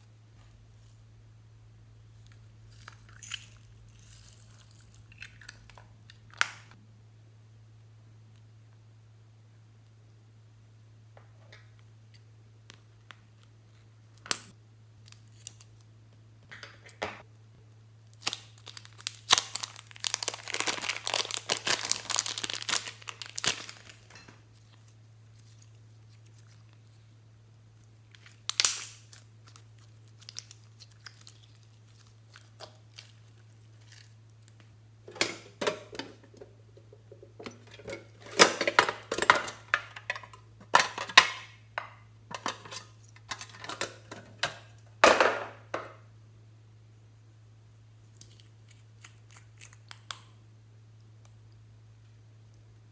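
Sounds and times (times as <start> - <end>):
low electrical hum: 0.0 - 52.9
plastic packaging crinkling: 18.0 - 27.0, 28.1 - 34.6.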